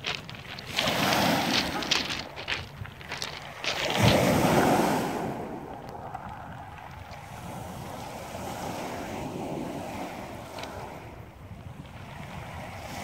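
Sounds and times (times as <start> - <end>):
pebble clicks: 0.0 - 4.8, 5.6 - 7.3
waves breaking on pebble shore: 0.0 - 13.0
wind on microphone: 0.0 - 13.0.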